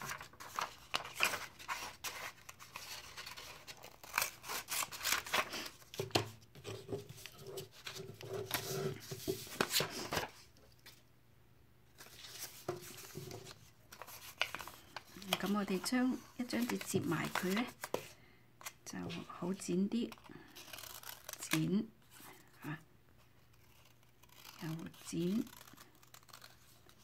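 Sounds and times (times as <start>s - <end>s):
paper rustling: 0.0s - 11.0s, 12.0s - 19.3s
scissors cutting paper: 20.2s - 21.7s, 23.6s - 27.0s.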